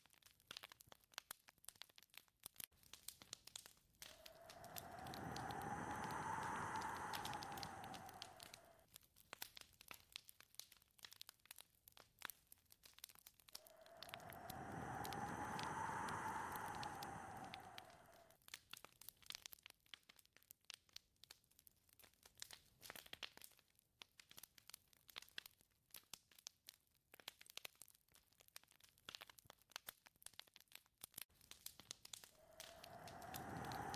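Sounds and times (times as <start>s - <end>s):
wood fire crackling: 0.1s - 20.2s, 30.6s - 33.9s
wind noise: 4.1s - 8.8s, 13.6s - 18.3s, 32.4s - 33.9s.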